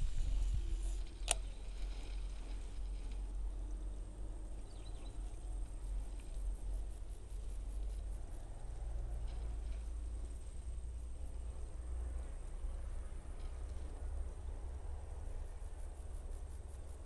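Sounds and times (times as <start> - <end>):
insects chirping: 0.0 - 17.0
wind rumble on microphone: 0.0 - 17.0
sharp click: 1.2 - 1.5.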